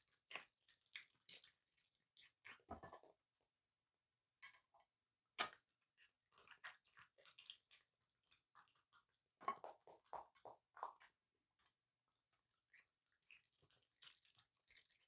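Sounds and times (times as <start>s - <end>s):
raccoon chewing grapes: 6.0s - 11.0s.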